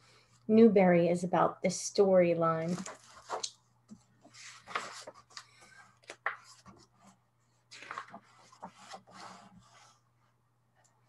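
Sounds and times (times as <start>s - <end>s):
book pages rustling: 2.6s - 10.1s.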